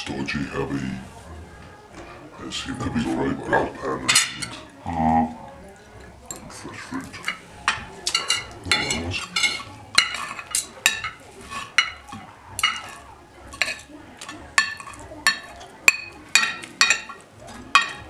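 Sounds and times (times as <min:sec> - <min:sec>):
cutlery clinking on a plate: 0:03.8 - 0:04.8, 0:06.2 - 0:18.0.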